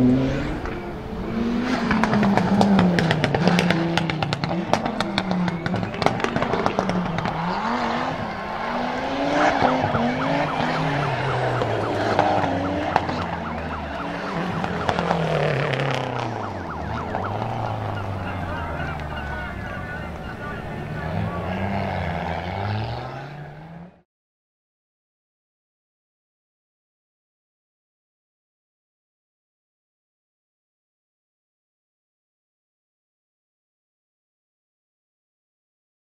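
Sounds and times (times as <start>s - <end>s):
rally car engine revving: 0.0s - 24.0s
exhaust pops and crackles: 1.9s - 8.7s, 9.4s - 21.4s
tyres squealing: 4.3s - 23.7s.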